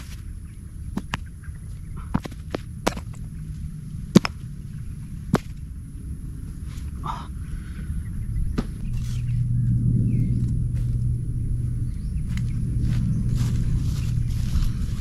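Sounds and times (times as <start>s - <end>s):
highway traffic rumble: 0.0s - 15.0s
rocks knocking together: 0.9s - 1.3s, 2.1s - 3.2s, 4.1s - 4.4s, 5.3s - 5.6s.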